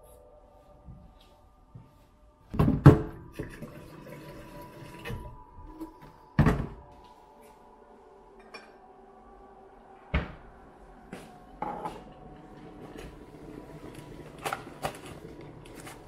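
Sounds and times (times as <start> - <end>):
tap water running into kettle: 3.4 - 5.3.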